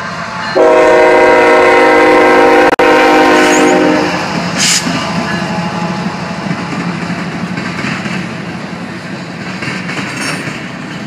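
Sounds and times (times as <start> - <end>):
train wheels rumbling: 0.0 - 11.0
locomotive air horn: 0.6 - 6.8.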